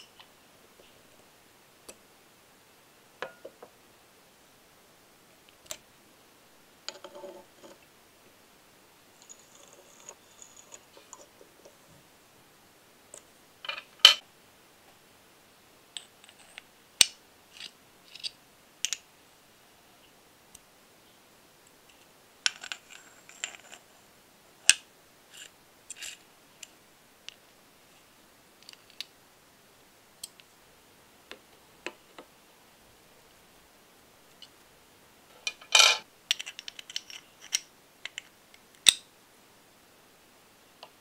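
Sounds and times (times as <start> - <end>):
small metal parts clicking: 35.4 - 39.0.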